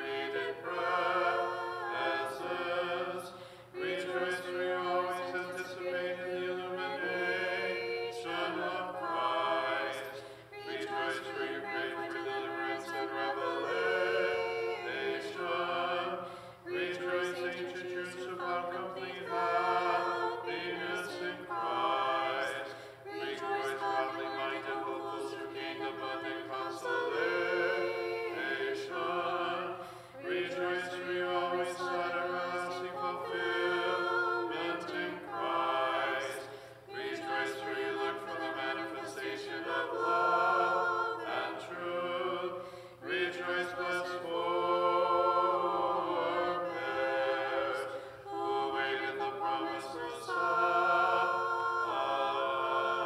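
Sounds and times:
choir singing a cappella chant: 0.0s - 53.0s.

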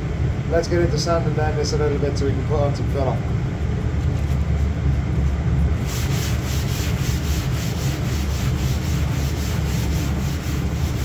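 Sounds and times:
low hum: 0.0s - 11.0s
sandpaper rubbing on metal: 5.8s - 11.0s.

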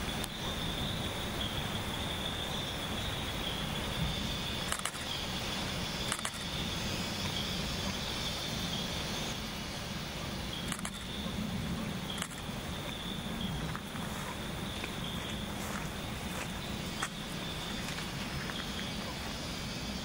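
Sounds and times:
faint clicks: 12.1s - 12.5s.

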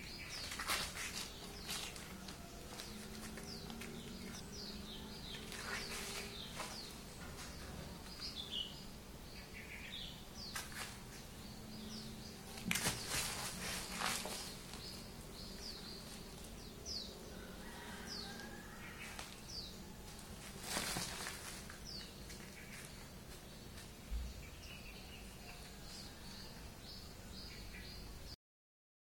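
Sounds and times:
low steady hum: 0.0s - 28.3s
cats wrestling on plastic sack: 12.5s - 15.0s, 20.0s - 22.9s.

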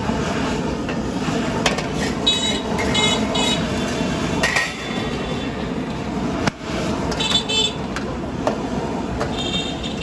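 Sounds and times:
gas burner roaring: 0.0s - 10.0s
traffic: 0.0s - 10.0s
metal clanks of iron pan: 4.4s - 5.0s.

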